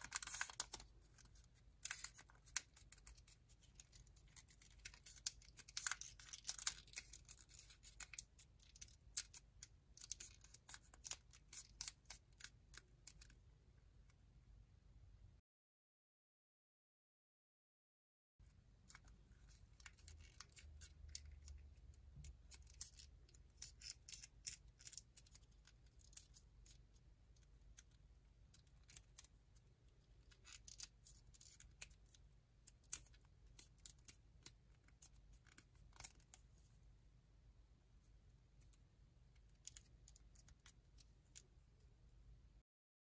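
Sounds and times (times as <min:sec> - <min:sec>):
paper crackling and crinkling: 0:00.0 - 0:09.3.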